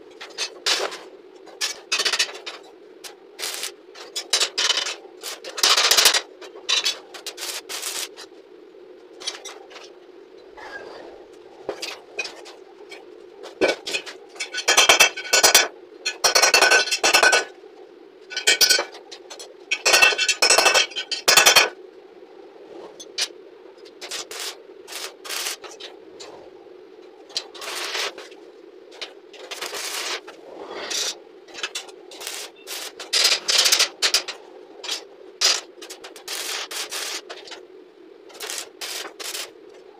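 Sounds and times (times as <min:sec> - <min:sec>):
steady hum: 0:00.0 - 0:39.9
tack weld crackling: 0:01.6 - 0:08.3, 0:23.9 - 0:26.4, 0:27.3 - 0:37.6, 0:38.3 - 0:39.9.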